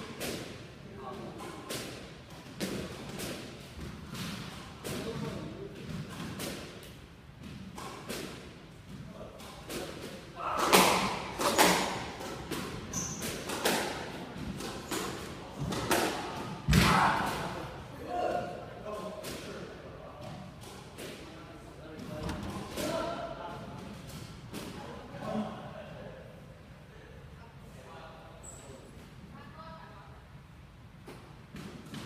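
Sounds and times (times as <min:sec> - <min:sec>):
squash ball hitting rackets: 0:01.4 - 0:17.6
ball smacking court walls: 0:22.0 - 0:23.1.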